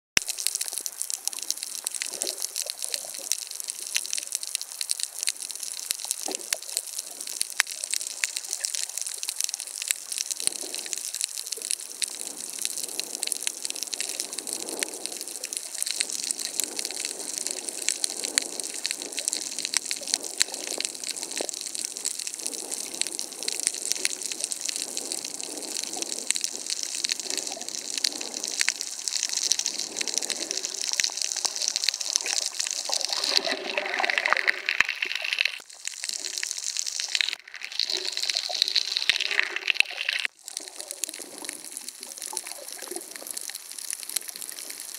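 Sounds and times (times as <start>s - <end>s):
crackle of reef clicks: 0.2s - 44.9s
water swishing: 0.2s - 44.9s
underwater hiss: 10.2s - 36.4s.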